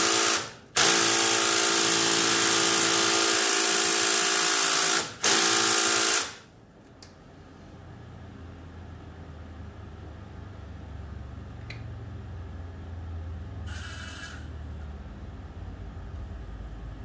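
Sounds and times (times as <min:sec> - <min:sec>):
cordless power tool running: 0:00.0 - 0:06.4.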